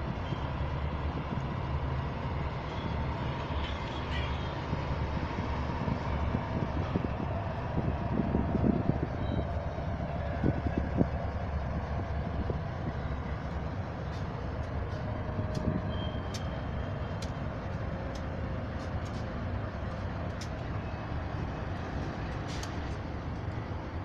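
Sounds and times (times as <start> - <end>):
freight train rumbling across bridge: 0.0 - 24.0
sharp clicks: 15.4 - 17.4.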